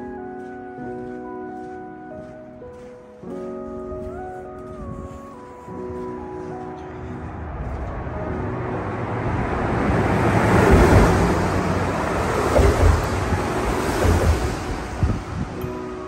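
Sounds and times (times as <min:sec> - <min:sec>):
car passing on wooden bridge: 0:05.7 - 0:16.0
low thumps: 0:09.2 - 0:15.7.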